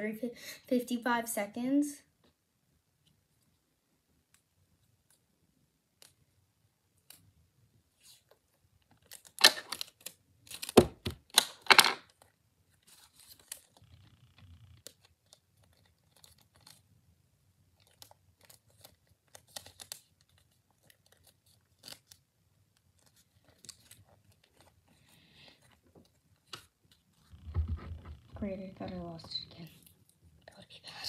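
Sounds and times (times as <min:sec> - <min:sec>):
paper rustling: 0:12.1 - 0:14.0, 0:14.8 - 0:16.9, 0:17.7 - 0:30.1.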